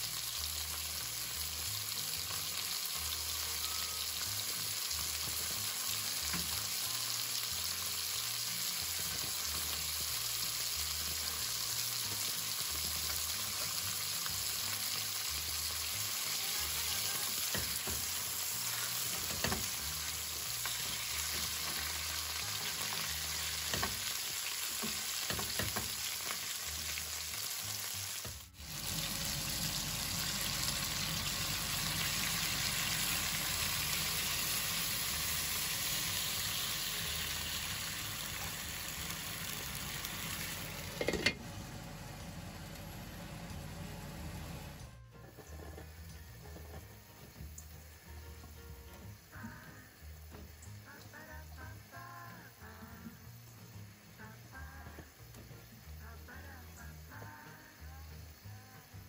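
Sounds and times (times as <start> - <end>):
meat sizzling in a frying pan: 0.0 - 41.4.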